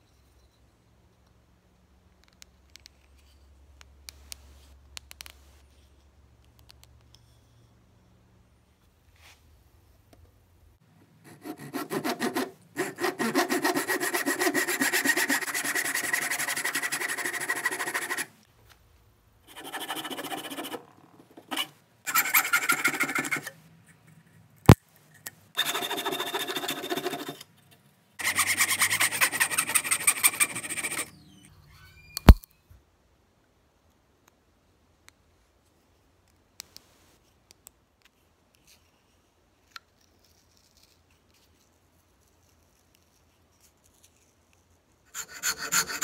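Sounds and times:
handsaw cutting wood: 11.2 - 18.3, 19.5 - 23.5, 28.2 - 31.2, 45.2 - 46.0
sharp click: 32.2 - 32.5.

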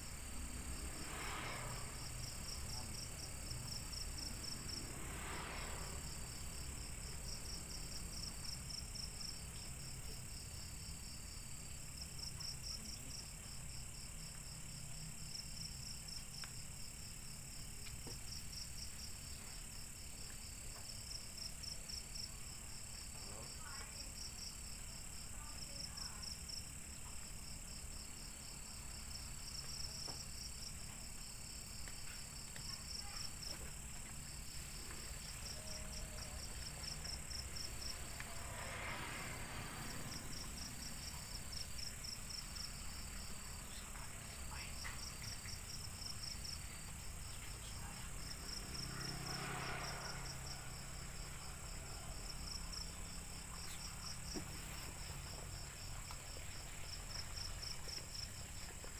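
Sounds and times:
motorbike passing: 0.0 - 10.2, 33.2 - 58.8
insects chirping: 0.0 - 58.9.

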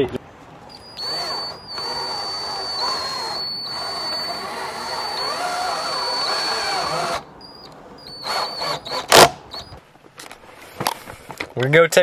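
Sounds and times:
cordless drill driving screws: 0.7 - 9.8.

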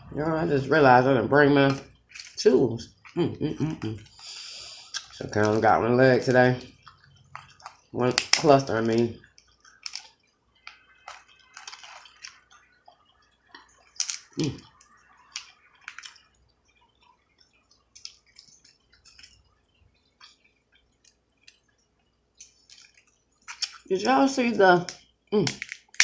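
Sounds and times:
crab shells cracking by hand: 6.8 - 19.4, 22.4 - 24.2, 24.8 - 26.0.

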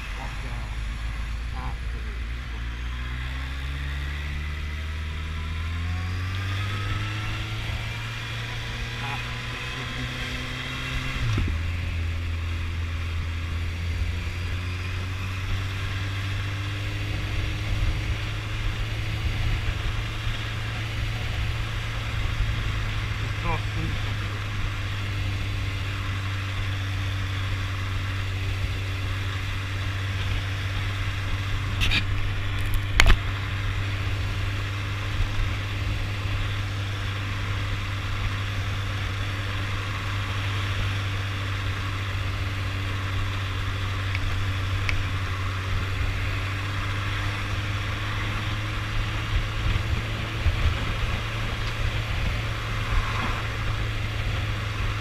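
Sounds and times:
motorcycle engine humming: 0.0 - 55.0
wind rushing on microphone: 48.0 - 55.0.

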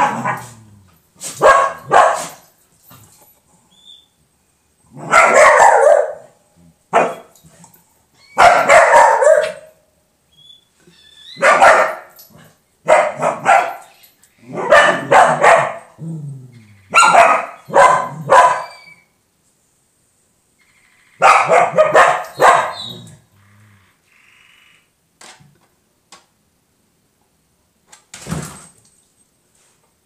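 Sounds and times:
dog barking loudly: 0.0 - 0.6, 1.3 - 2.4, 4.9 - 7.3, 8.4 - 9.8, 11.4 - 12.2, 12.8 - 13.9, 14.5 - 16.0, 16.9 - 18.8, 21.2 - 23.0.

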